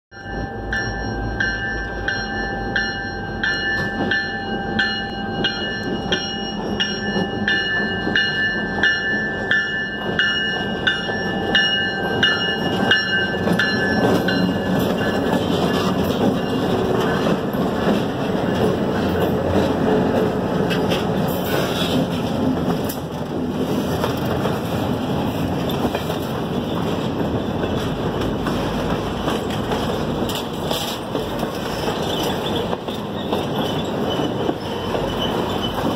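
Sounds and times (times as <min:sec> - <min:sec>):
locomotive bell ringing: 0:00.1 - 0:19.7
diesel locomotive engine: 0:00.1 - 0:35.9
train wheels on rails: 0:00.2 - 0:35.9.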